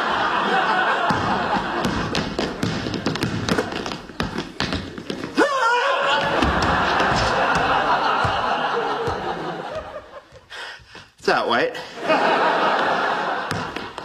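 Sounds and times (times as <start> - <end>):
audience laughter: 0.0 - 2.1, 6.1 - 10.4, 11.8 - 14.0
basketball bouncing on wooden floor: 1.0 - 5.4, 6.2 - 9.4, 13.5 - 14.0.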